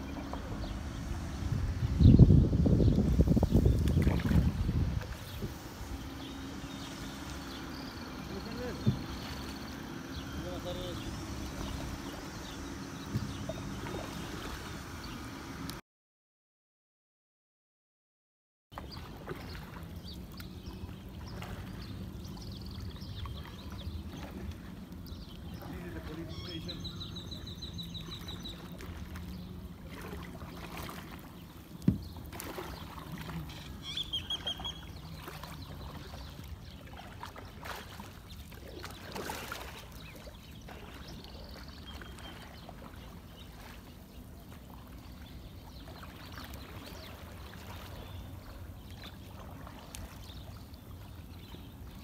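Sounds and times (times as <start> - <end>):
paddles swishing through water: 0.0 - 15.8, 18.7 - 52.0
bird trilling: 26.2 - 28.7, 33.4 - 35.2.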